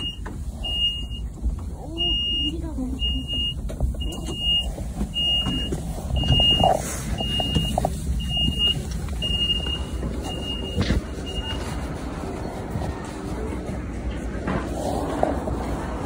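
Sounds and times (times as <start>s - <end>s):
electronic warning beeps: 0.0s - 11.7s
low rumble: 0.0s - 16.0s.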